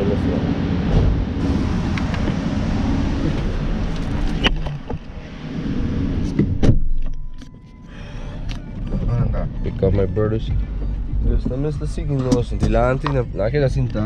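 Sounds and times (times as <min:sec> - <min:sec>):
car door shutting: 0:00.9 - 0:02.5, 0:06.1 - 0:07.8, 0:10.8 - 0:13.2.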